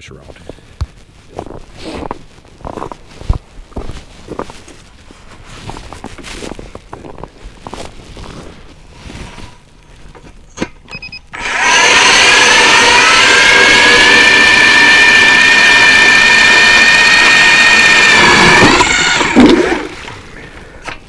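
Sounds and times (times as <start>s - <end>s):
ice auger motor whining: 11.3s - 20.1s.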